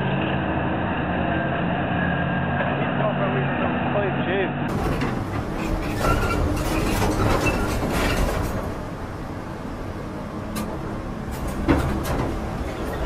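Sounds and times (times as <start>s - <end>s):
heavy machinery rumbling: 0.0s - 13.0s
metallic clanks: 4.7s - 8.9s.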